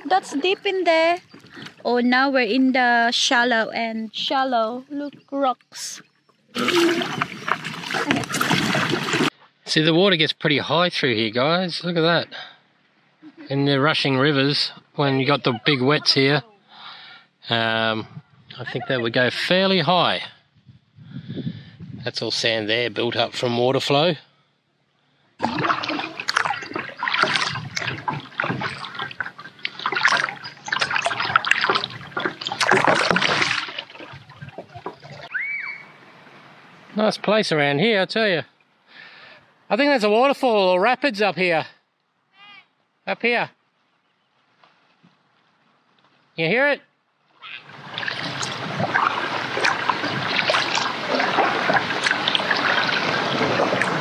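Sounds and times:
paddle splashing and dripping: 0:00.0 - 0:02.0, 0:06.3 - 0:09.4, 0:25.4 - 0:37.0, 0:47.5 - 0:54.0
water sloshing against hull: 0:00.0 - 0:03.4, 0:06.1 - 0:09.3, 0:25.4 - 0:37.0, 0:47.5 - 0:54.0.

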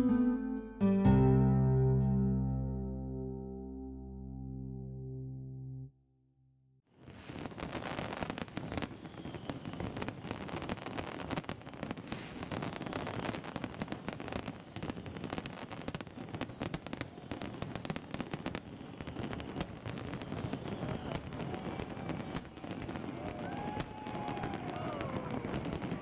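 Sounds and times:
fireworks bangs and crackles: 0:07.0 - 0:26.0.

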